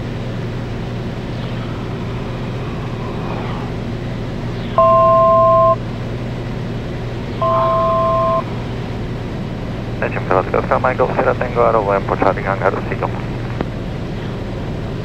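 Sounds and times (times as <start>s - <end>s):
aircraft engine droning: 0.0s - 15.0s
two-note electronic beep: 4.8s - 5.8s, 7.4s - 8.4s.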